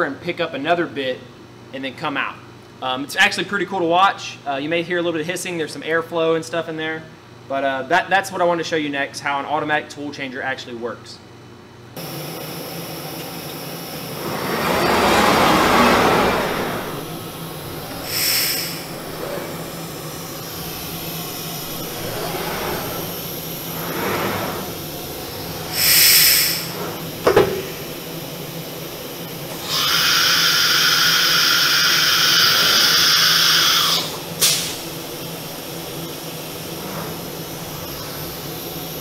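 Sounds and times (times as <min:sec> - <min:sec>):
gantry motors humming and whirring: 0:12.0 - 0:39.0
compressed air hiss: 0:14.1 - 0:27.9, 0:29.5 - 0:39.0.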